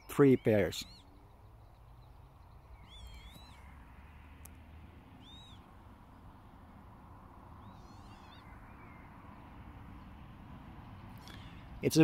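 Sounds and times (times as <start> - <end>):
lapwings calling: 0.0 - 6.3, 7.4 - 10.2.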